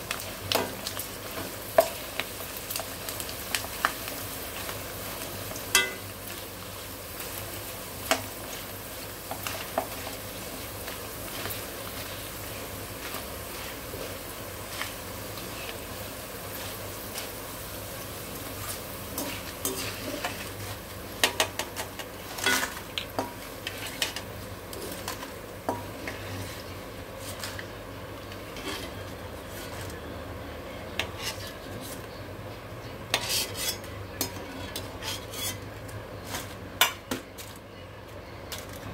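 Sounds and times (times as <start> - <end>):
chips sizzling in oil: 0.0 - 37.7
metal skimmer scraping a pan: 33.1 - 35.6.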